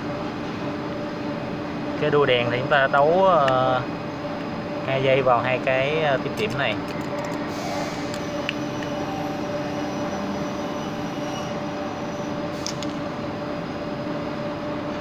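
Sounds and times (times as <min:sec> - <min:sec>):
mechanical drone: 0:05.5 - 0:15.0.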